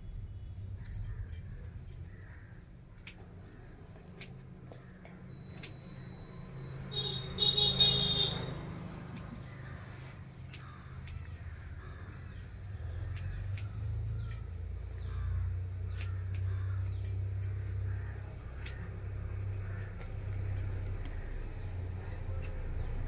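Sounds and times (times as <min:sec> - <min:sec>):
scissors snipping: 0:03.0 - 0:06.0, 0:09.0 - 0:09.6, 0:10.4 - 0:11.8, 0:13.0 - 0:14.6, 0:18.4 - 0:23.0
glass bangles clinking: 0:13.8 - 0:14.8, 0:18.8 - 0:23.0.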